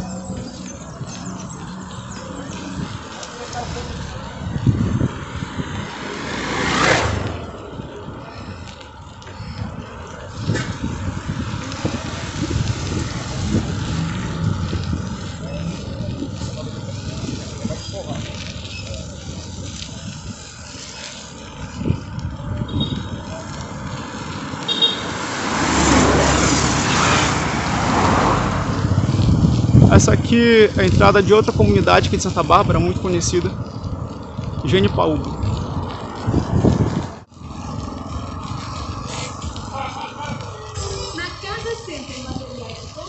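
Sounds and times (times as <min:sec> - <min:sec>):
road traffic: 0:00.0 - 0:43.0
vehicle passing by: 0:00.0 - 0:43.0
wind rumble on microphone: 0:00.0 - 0:43.0
motorcycle passing close by: 0:04.5 - 0:07.7, 0:11.4 - 0:16.0, 0:24.6 - 0:29.8.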